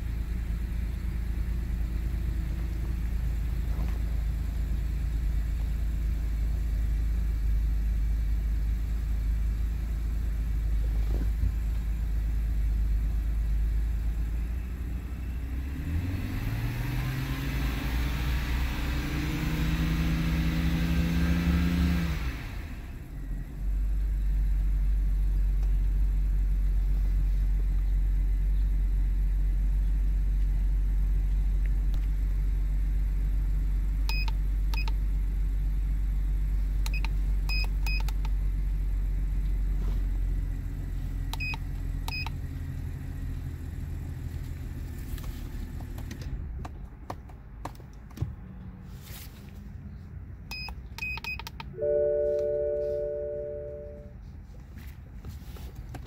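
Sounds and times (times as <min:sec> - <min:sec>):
car engine idling: 0:00.0 - 0:16.0, 0:22.4 - 0:48.6
keypad beeps: 0:50.5 - 0:54.1.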